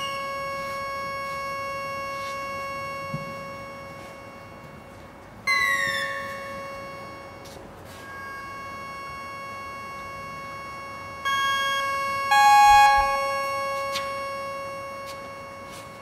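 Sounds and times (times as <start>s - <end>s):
bright tone sliding downward: 11.3s - 14.4s
synthesizer drone: 11.3s - 15.7s.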